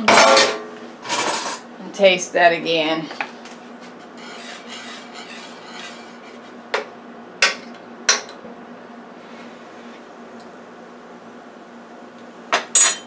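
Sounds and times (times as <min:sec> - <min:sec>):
whisk scraping in skillet: 0:04.0 - 0:06.6.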